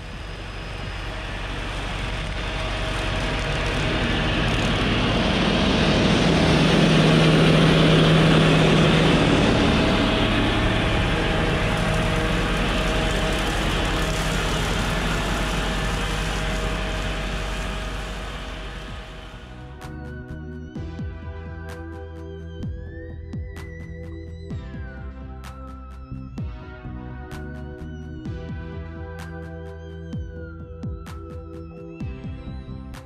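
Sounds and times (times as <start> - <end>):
tractor engine driving past: 0.0 - 20.5.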